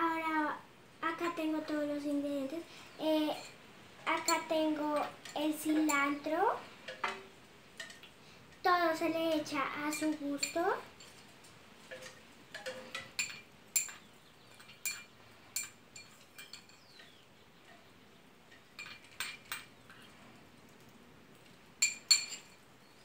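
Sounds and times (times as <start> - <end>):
metal spoon clinking on bowl: 3.3 - 6.2, 9.9 - 11.2, 11.9 - 17.8, 21.8 - 22.6.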